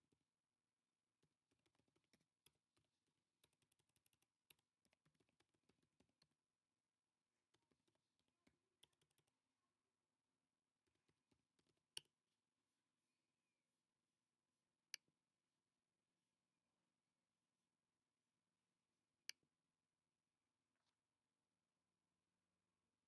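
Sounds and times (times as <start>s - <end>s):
faint keyboard typing: 1.2s - 6.4s, 7.4s - 9.4s.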